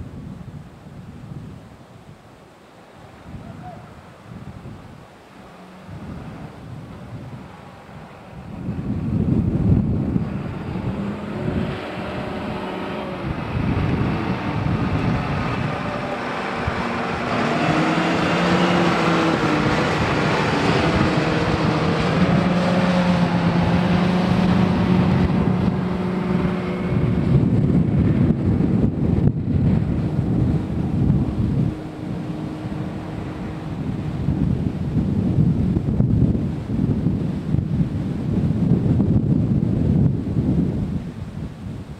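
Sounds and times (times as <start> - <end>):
wind buffeting microphone: 0.0 - 2.3, 3.0 - 41.9
diesel engine driving past: 5.4 - 35.4.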